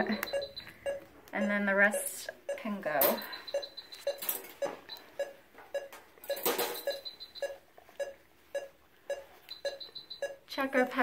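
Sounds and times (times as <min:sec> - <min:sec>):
monitor beeping: 0:00.0 - 0:10.9
rustling and handling noise: 0:02.9 - 0:10.3.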